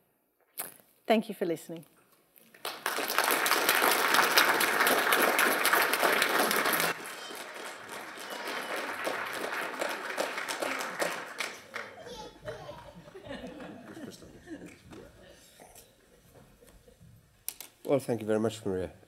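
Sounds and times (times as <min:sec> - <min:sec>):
audience applauding: 0:02.6 - 0:14.9.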